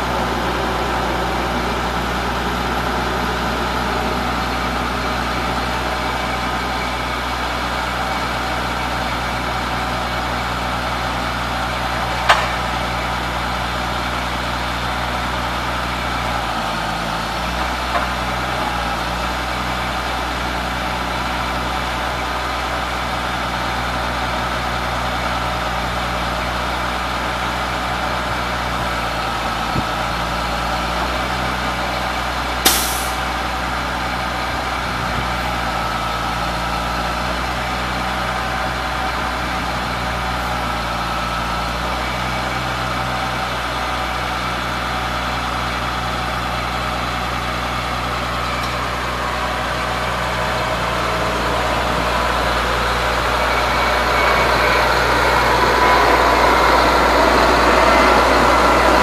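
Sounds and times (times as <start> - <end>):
truck engine idling: 0.0 - 59.0
brief hiss: 32.6 - 33.2.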